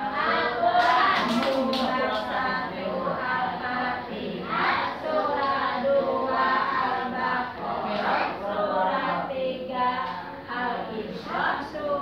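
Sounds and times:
children singing: 0.0 - 9.4.

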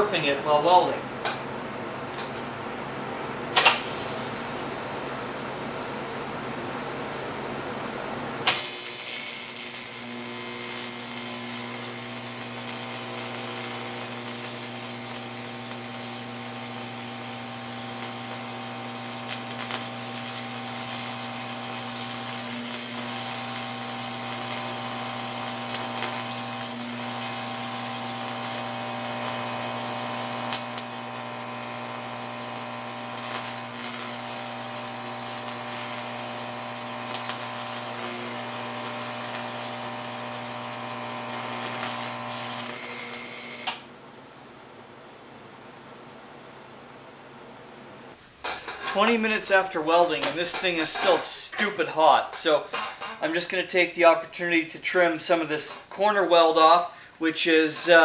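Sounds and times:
welding arc buzzing: 8.4 - 43.9, 48.4 - 53.6, 57.4 - 58.0.

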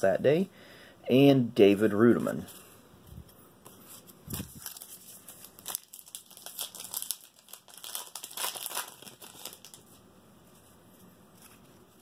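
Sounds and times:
wrapper crinkling and tearing: 4.3 - 10.0.

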